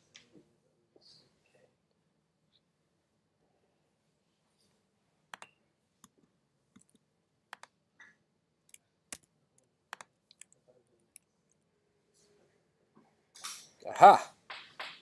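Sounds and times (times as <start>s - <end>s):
computer key and mouse clicks: 5.3s - 6.2s, 6.8s - 7.8s, 9.9s - 10.6s.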